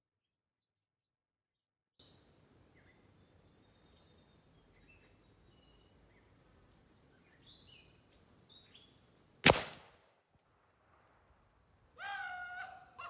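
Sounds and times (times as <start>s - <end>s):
birds chirping: 2.0s - 9.3s
low background hiss: 2.0s - 12.0s.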